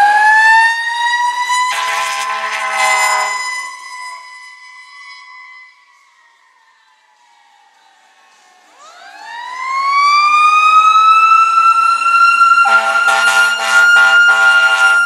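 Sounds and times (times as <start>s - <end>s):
fire engine siren wailing: 0.0s - 15.0s
air horn blasts: 1.5s - 5.8s, 12.6s - 15.0s.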